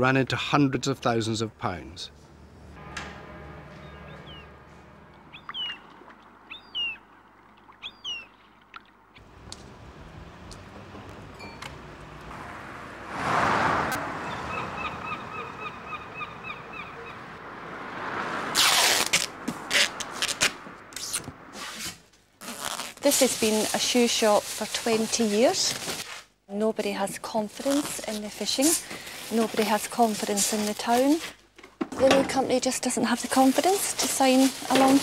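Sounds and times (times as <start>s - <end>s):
outdoor noise: 0.0s - 35.0s
small birds chirping: 3.8s - 4.5s, 5.2s - 8.6s, 14.2s - 17.4s.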